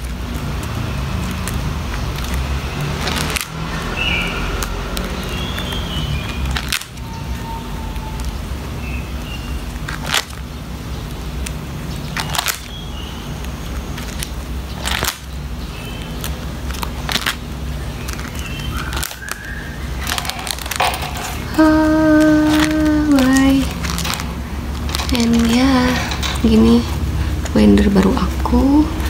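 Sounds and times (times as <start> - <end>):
plastic binder sleeves crackling: 0.0 - 29.0
steady low hum: 0.0 - 29.0
binder page flips: 18.0 - 26.7.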